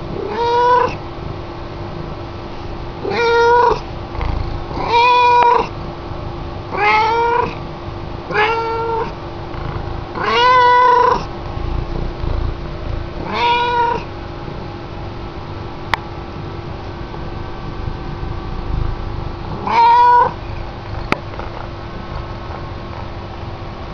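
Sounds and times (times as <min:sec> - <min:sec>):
cat meowing: 0:00.2 - 0:01.0, 0:03.0 - 0:03.8, 0:04.7 - 0:05.7, 0:06.7 - 0:07.6, 0:08.3 - 0:09.2, 0:10.2 - 0:11.3, 0:13.2 - 0:14.1, 0:19.6 - 0:20.4.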